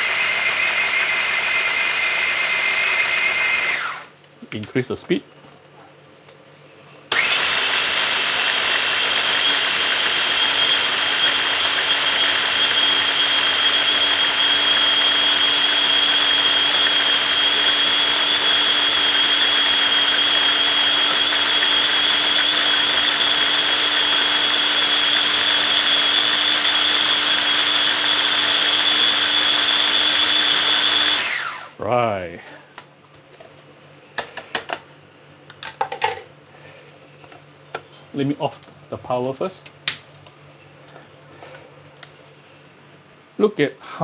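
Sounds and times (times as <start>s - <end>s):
food processor motor whining: 0.0s - 4.1s, 7.1s - 31.8s.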